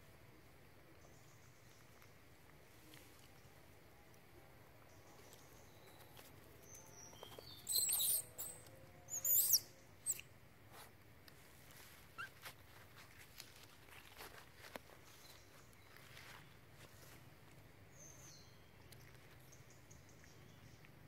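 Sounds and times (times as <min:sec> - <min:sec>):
faint chirps and clicks: 0:00.8 - 0:10.3, 0:17.4 - 0:21.0
squeaky animal calls: 0:07.7 - 0:10.2.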